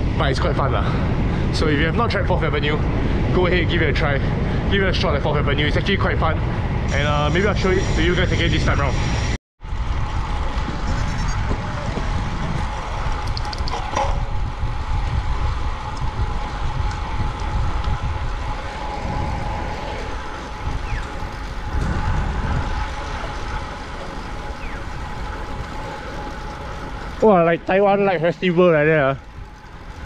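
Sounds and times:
bike tyre road noise: 0.0 - 30.0
wind buffeting microphone: 0.0 - 30.0.

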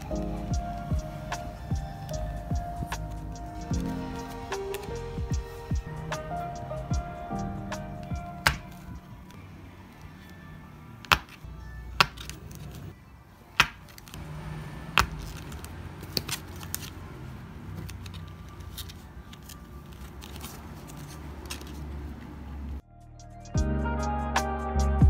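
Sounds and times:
card clicks and taps: 7.8 - 8.9, 11.0 - 11.4, 12.0 - 12.8, 14.9 - 17.0
soft rustling: 15.1 - 22.8.

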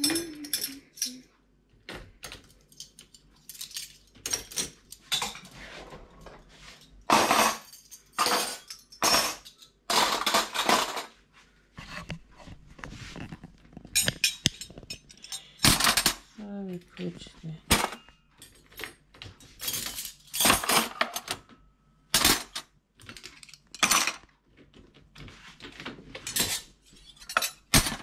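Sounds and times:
cutlery clinking and rattling: 0.0 - 1.2, 2.2 - 11.2, 13.8 - 16.3, 17.7 - 21.5, 22.1 - 24.4, 26.2 - 28.0.

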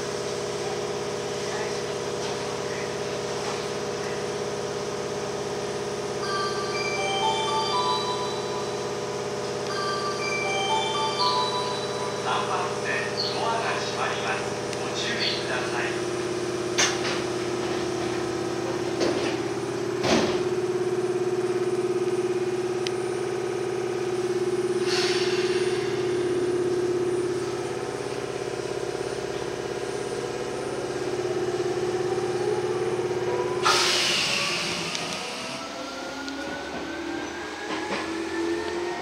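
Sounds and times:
train interior hum: 0.0 - 39.0
train doors sliding shut: 20.0 - 20.5, 24.8 - 25.9, 33.6 - 35.5
air hiss: 24.8 - 26.0, 33.6 - 35.0.

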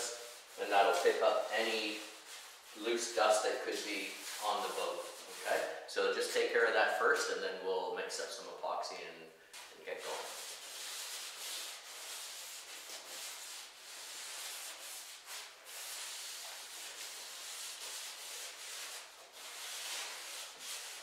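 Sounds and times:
cloth rubbing on wood: 0.0 - 5.7, 9.9 - 21.0.

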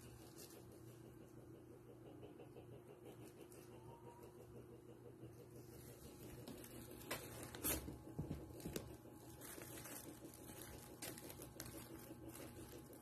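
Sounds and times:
plastic bag rustling: 6.0 - 13.0.

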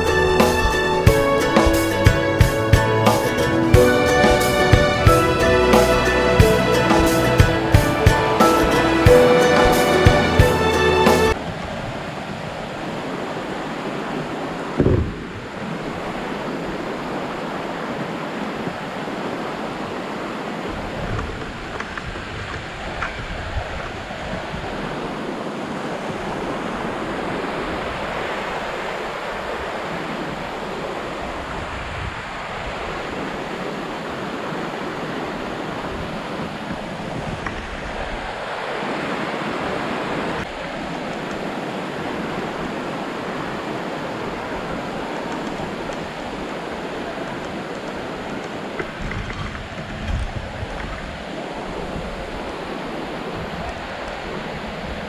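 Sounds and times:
stream rushing over rocks: 0.0 - 55.0.

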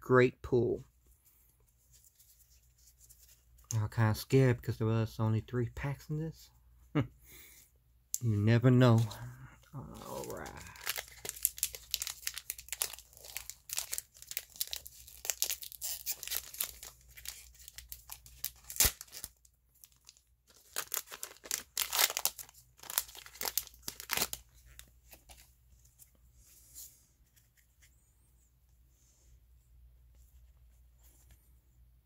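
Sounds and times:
handling of cards: 8.2 - 28.1
foil wrapper crinkling: 9.9 - 24.8.

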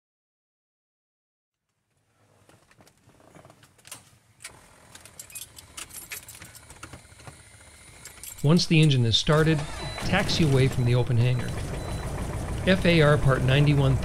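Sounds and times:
keys jingling: 4.9 - 6.9, 8.0 - 9.0.

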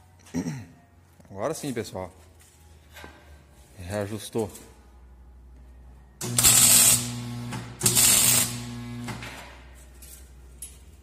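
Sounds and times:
welding arc crackle: 6.2 - 9.2
welder mains hum: 6.2 - 9.4.

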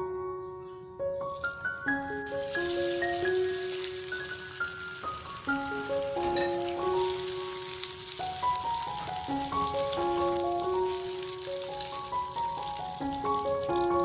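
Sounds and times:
butter sizzling in a frying pan: 1.2 - 14.0
soft mallet percussion melody: 6.2 - 7.3.

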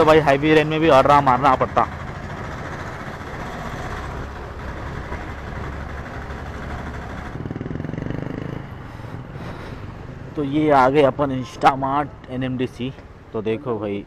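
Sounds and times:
scooter engine running: 0.7 - 9.3.

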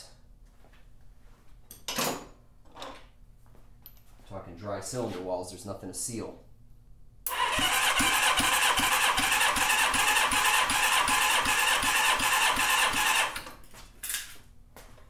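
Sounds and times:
engine cranking over by starter: 7.3 - 13.5.

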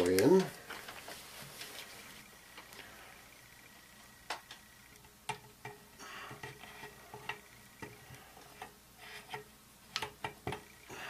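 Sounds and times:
faint rustling: 0.0 - 3.2.

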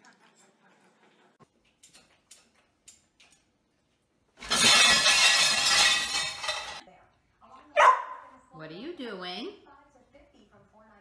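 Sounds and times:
loud crash and clatter: 4.4 - 6.8.

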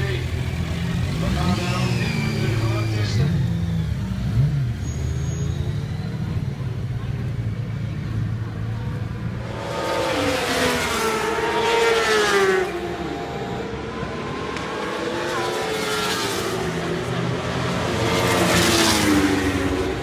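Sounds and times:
racing motorcycles passing: 8.0 - 20.0.

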